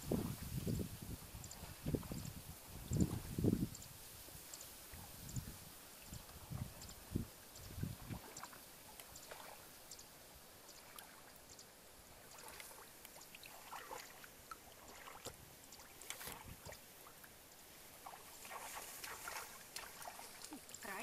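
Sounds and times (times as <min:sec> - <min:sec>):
shallow water splashing: 0:04.8 - 0:09.9, 0:10.6 - 0:21.0.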